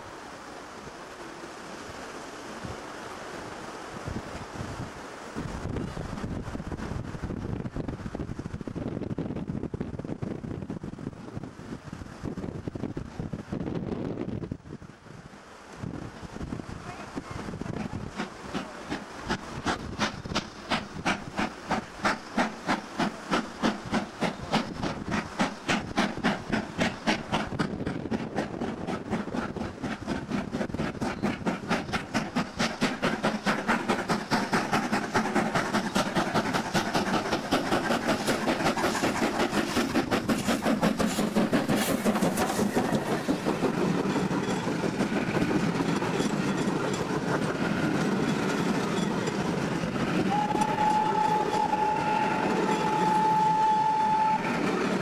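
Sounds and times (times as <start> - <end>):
train coaches rolling: 16.8 - 55.0
steam locomotive exhaust beats: 17.2 - 55.0.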